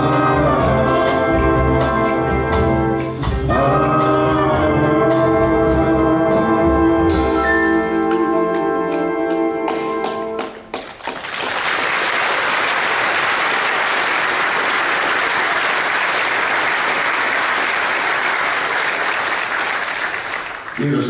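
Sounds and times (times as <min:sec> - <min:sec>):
audience applause: 0:10.4 - 0:21.0.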